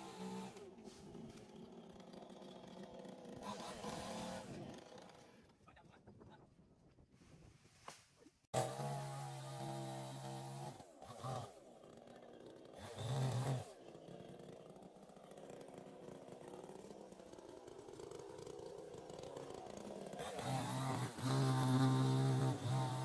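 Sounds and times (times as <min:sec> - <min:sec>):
chainsaw engine revving: 0:00.0 - 0:05.6, 0:08.6 - 0:23.0.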